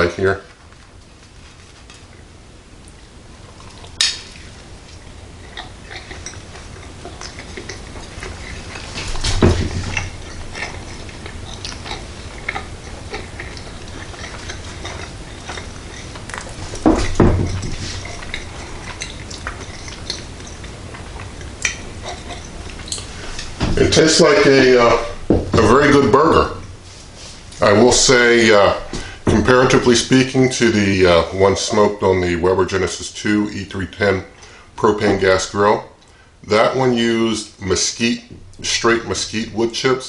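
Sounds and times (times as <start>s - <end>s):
person chewing a burger: 0.6s - 23.6s.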